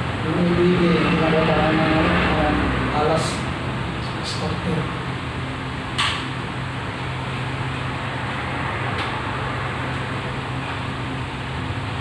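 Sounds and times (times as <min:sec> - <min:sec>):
machine hum: 0:00.0 - 0:12.0
sharp click: 0:06.0 - 0:06.3.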